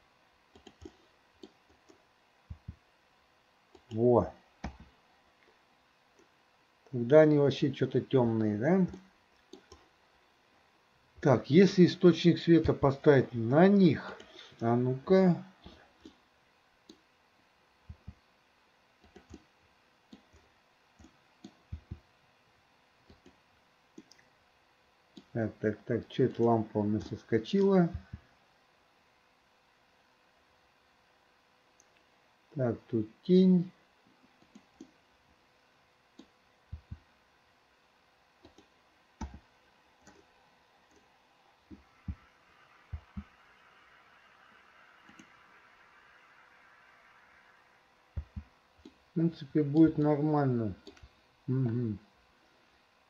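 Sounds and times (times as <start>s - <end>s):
faint steady hiss: 0.0s - 53.0s
mouse and keyboard clicks: 0.5s - 2.8s, 19.0s - 19.5s, 45.0s - 45.4s.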